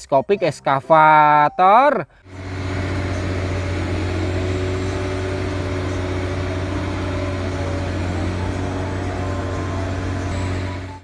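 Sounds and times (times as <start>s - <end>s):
crane engine humming: 2.2s - 11.0s.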